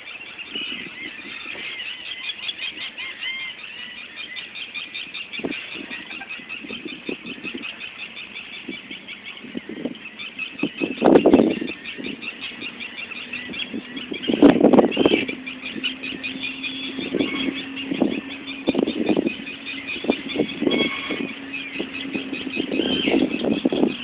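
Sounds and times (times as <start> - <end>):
wind gusts buffeting microphone: 0.0 - 1.8, 5.2 - 24.0
birds chattering: 0.0 - 24.0.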